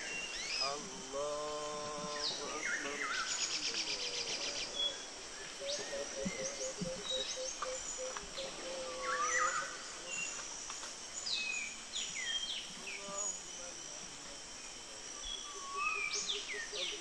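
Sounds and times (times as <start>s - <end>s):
insects: 0.0s - 17.0s
birds chirping and whistling: 5.6s - 8.5s.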